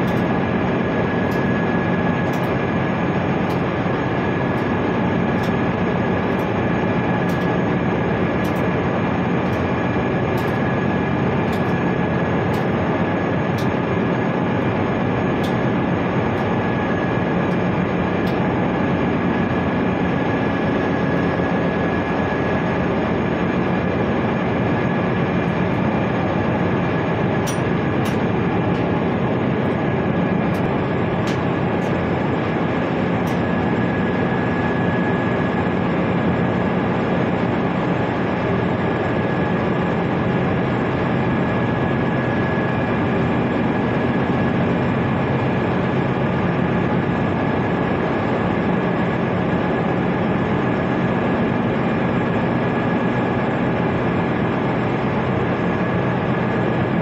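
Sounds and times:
ship machinery droning: 0.0 - 36.6.

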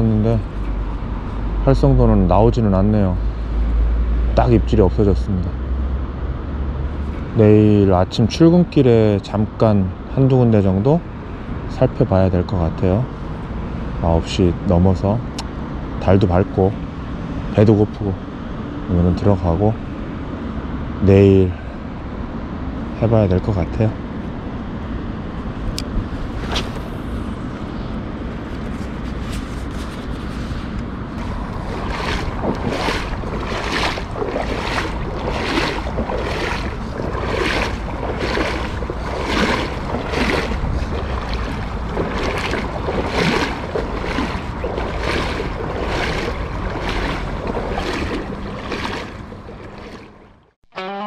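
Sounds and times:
sloshing steps through water: 29.1 - 50.6
river water flowing: 30.4 - 50.6
wind rushing: 31.2 - 49.7.

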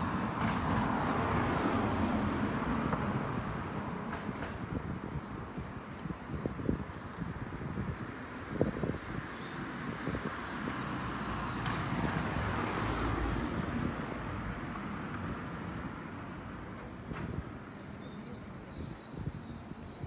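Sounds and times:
small birds chirping: 17.5 - 20.0.

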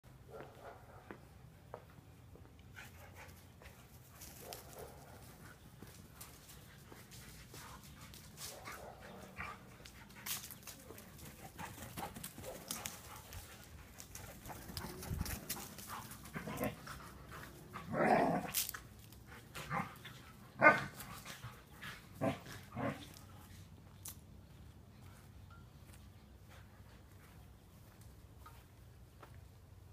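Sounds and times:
dogs barking: 4.4 - 5.3.

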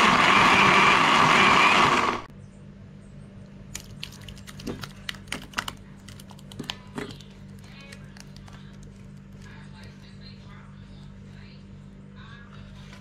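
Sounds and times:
electric blender running: 0.0 - 2.3.

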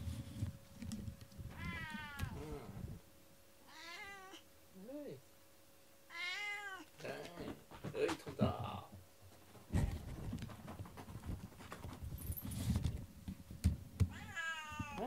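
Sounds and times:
cat meowing: 1.5 - 2.6, 3.6 - 4.5, 6.1 - 6.9, 14.1 - 15.0.

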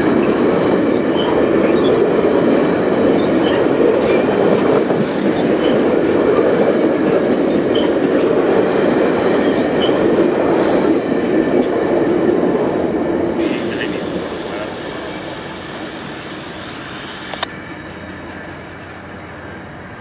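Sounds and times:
train wheels rumbling on rails: 0.0 - 20.0
faint high wheel squeal: 7.3 - 8.2.

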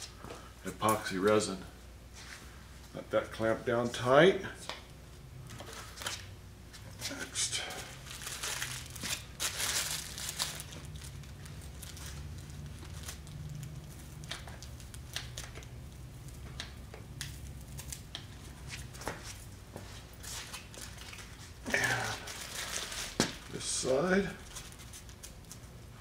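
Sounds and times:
steady low hum: 0.0 - 26.0
plastic bags crinkling: 7.8 - 15.7, 20.2 - 23.6.

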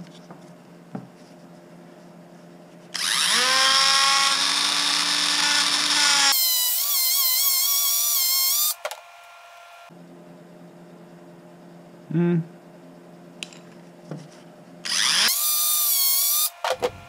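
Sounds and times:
rotary tool whining: 2.9 - 9.9, 14.8 - 17.0.

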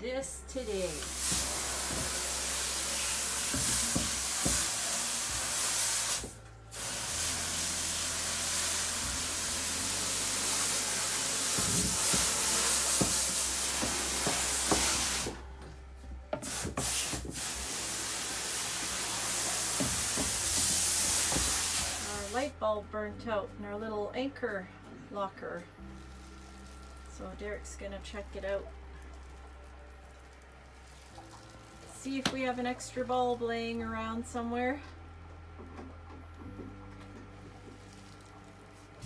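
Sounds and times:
water hose spraying: 0.6 - 15.4, 16.4 - 22.5, 26.0 - 33.1.

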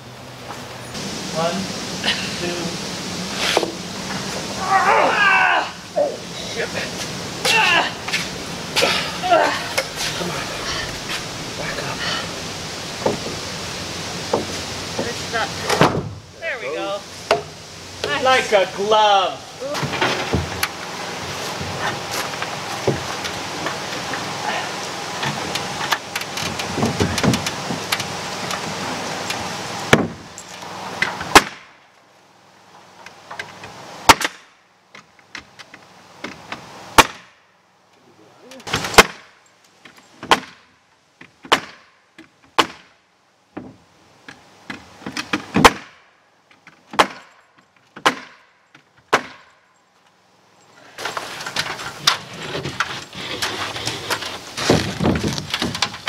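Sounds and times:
steady background noise: 0.0 - 56.0
nail gun shots: 31.3 - 31.7, 34.1 - 34.5, 37.0 - 37.3, 38.7 - 39.3, 41.5 - 41.9, 42.6 - 42.9, 45.6 - 46.0, 48.0 - 48.4, 49.1 - 49.5.

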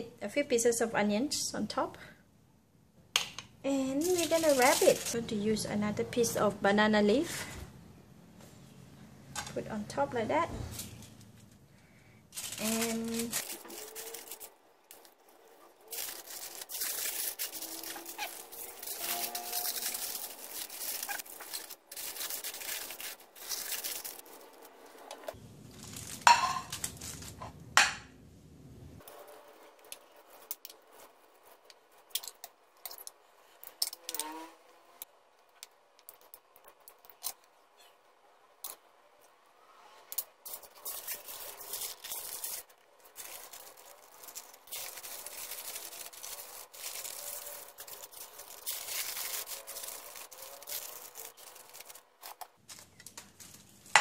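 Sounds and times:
aluminium foil crinkling: 3.9 - 5.2, 12.3 - 27.4, 29.0 - 39.3, 40.1 - 54.0
leaf rustling: 3.9 - 5.2, 10.7 - 27.4, 40.1 - 54.0.

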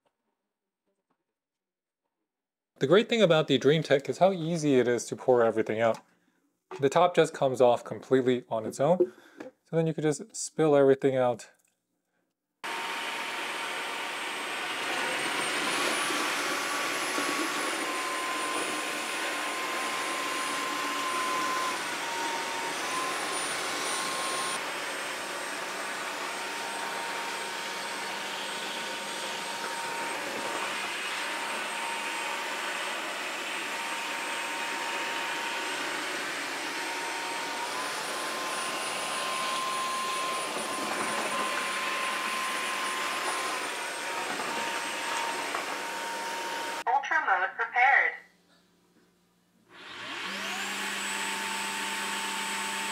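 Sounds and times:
vacuum cleaner whirring: 12.6 - 46.9, 49.7 - 52.9.

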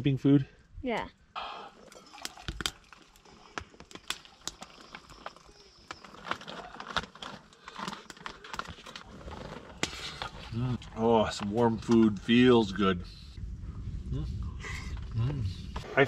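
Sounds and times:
wood stove burning: 1.8 - 13.2.

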